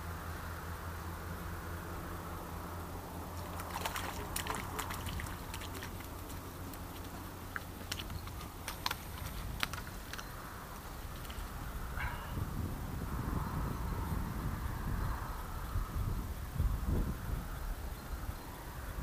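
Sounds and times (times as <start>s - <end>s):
steady low rumble: 1.0s - 17.4s
small water splashes: 3.2s - 9.8s.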